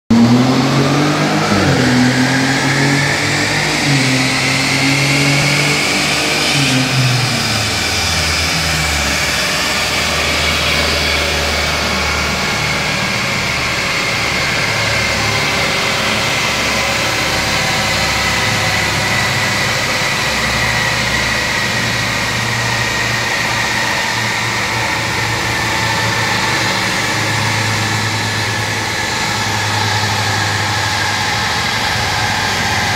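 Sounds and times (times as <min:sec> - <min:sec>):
car engine revving: 0:00.1 - 0:32.9
high whine: 0:00.1 - 0:32.9.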